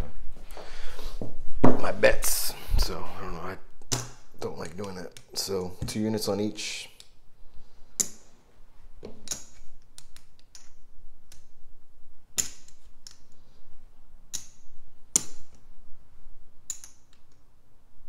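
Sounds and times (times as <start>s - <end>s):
casino chips clicking: 9.2s - 11.6s, 16.6s - 17.5s.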